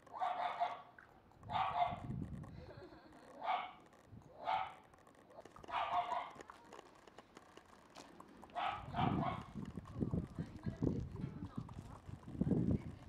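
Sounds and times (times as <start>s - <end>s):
puppy barking: 0.1s - 0.9s, 1.5s - 2.1s, 3.4s - 3.8s, 4.4s - 4.8s, 5.7s - 6.4s, 8.6s - 9.5s.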